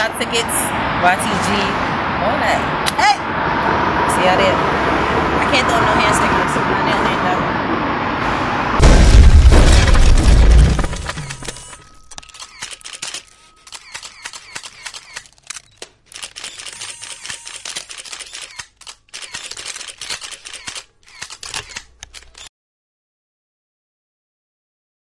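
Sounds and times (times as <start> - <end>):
camera shutters clicking: 11.2 - 22.5.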